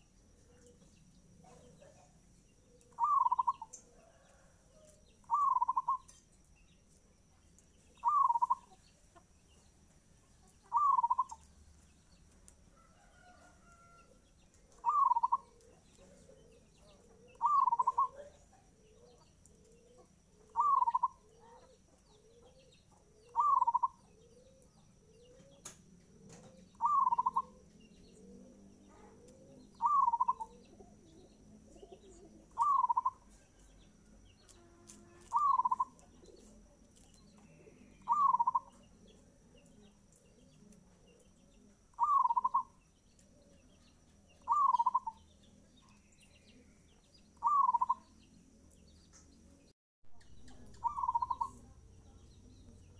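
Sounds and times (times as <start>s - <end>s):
dove cooing: 1.4s - 6.1s, 7.9s - 8.8s, 10.7s - 11.4s, 14.6s - 33.5s, 35.0s - 36.8s, 37.4s - 43.7s, 44.3s - 45.2s, 47.4s - 48.0s, 50.4s - 51.8s.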